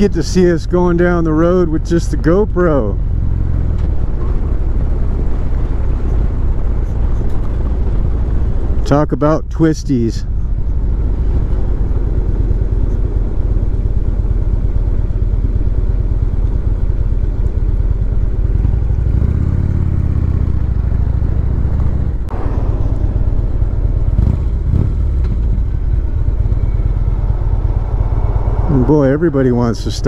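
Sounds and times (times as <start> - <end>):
motorcycle engine: 0.0 - 30.0
rushing wind: 0.0 - 30.0.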